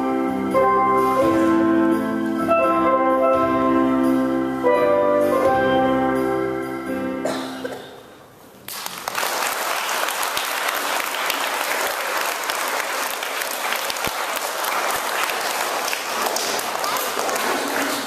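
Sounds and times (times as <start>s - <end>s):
audience applause: 8.7s - 18.0s.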